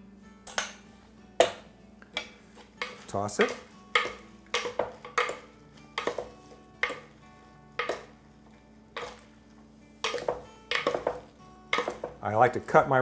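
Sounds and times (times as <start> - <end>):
salad servers tossing lettuce in bowl: 2.5 - 5.4.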